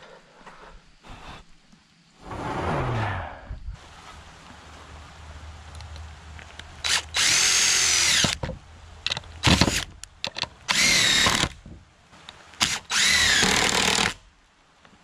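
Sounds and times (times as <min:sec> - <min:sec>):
cordless driver driving screws: 0:06.9 - 0:08.4.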